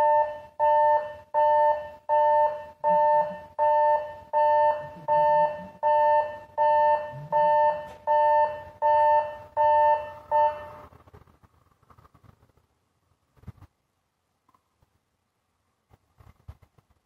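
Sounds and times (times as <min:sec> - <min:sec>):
level crossing warning bell: 0:00.0 - 0:10.9.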